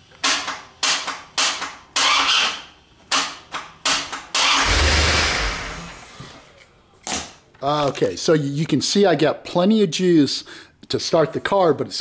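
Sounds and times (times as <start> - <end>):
loud rumbling noise: 4.6 - 6.1.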